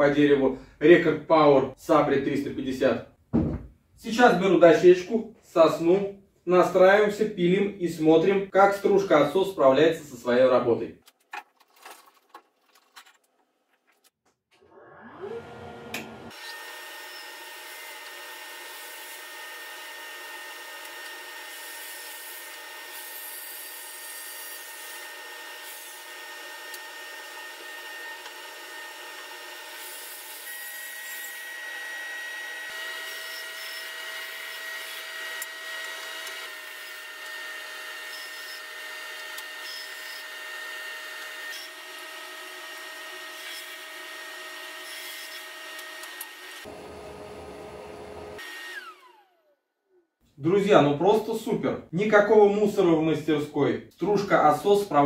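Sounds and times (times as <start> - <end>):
bandsaw blade rasping wood: 16.0 - 46.7
machine motors droning: 46.2 - 49.2.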